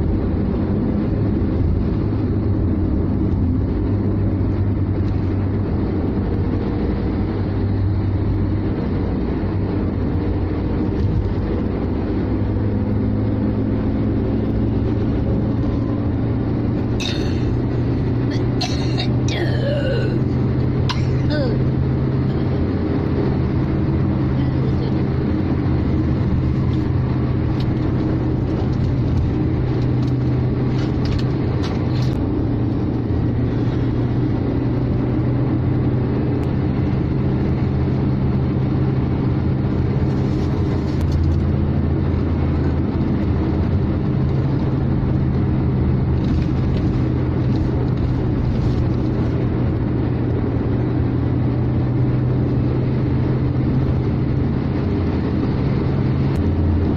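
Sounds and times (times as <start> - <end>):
car cabin engine and road noise: 0.0 - 56.9.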